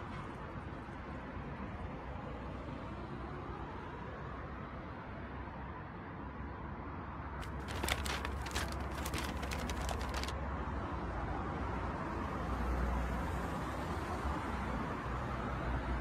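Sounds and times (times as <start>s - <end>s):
newspaper rustling: 7.4s - 10.3s.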